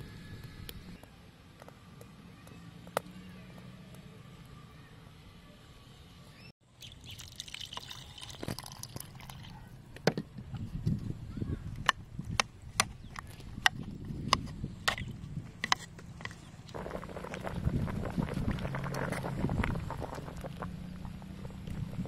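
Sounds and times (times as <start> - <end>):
water sloshing and trickling: 6.8 - 9.6.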